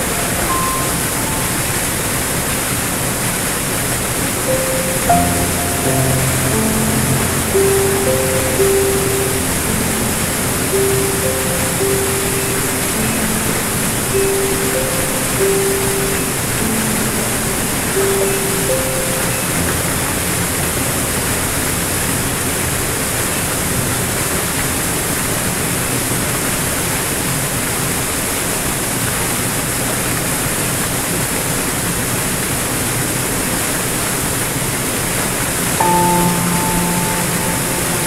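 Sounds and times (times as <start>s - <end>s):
soft piano notes: 0.0s - 27.0s, 35.6s - 38.0s
waterfall rushing onto rocks: 0.0s - 38.0s.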